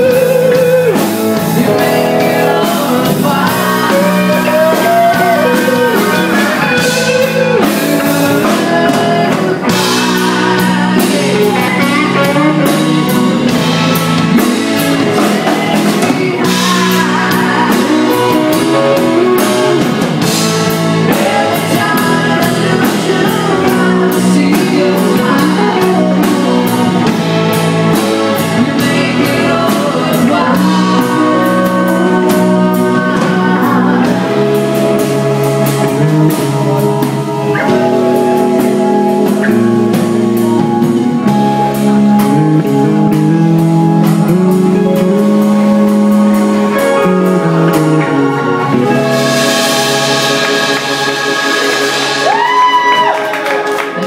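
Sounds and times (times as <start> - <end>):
woman singing: 0.0 - 20.4, 21.0 - 27.2, 28.4 - 35.2
drum kit: 0.0 - 54.0
electric guitar: 0.0 - 54.0
keyboards: 0.0 - 54.0.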